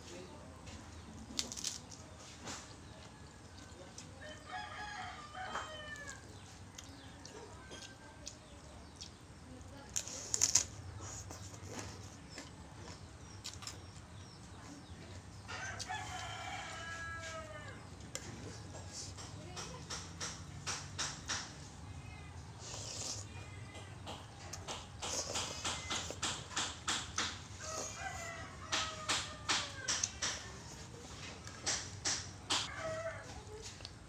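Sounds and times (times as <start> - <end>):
clicks and crunches: 1.2 - 4.1, 7.7 - 14.3
rooster crowing: 4.2 - 6.2, 15.5 - 17.8, 27.6 - 30.1, 32.6 - 33.5
slurping and chewing noodles: 22.6 - 23.4, 25.0 - 26.4.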